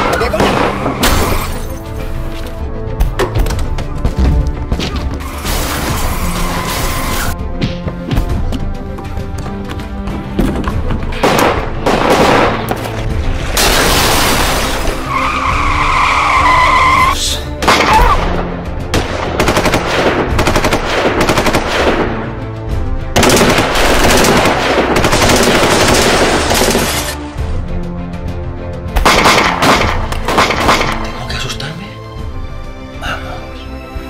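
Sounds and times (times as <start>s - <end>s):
dramatic music: 0.0s - 34.0s
gunfire bursts: 19.0s - 22.2s, 23.2s - 27.1s, 29.0s - 31.0s.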